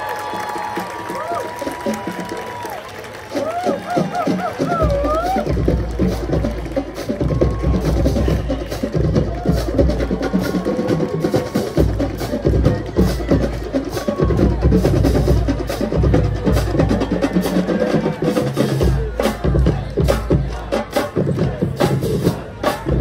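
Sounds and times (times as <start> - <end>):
marching band playing: 0.0 - 23.0.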